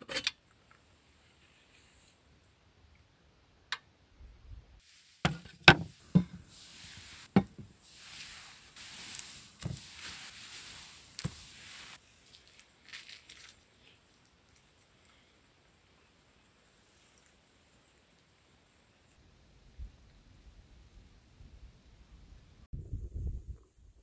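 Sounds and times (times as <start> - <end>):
soft rustling: 4.8 - 15.4
sharp knocks on wood and metal: 5.3 - 6.4.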